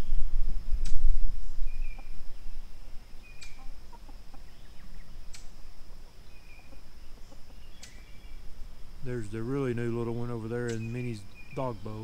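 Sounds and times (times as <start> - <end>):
high insect whine: 0.0 - 12.0
chickens clucking: 2.8 - 8.4.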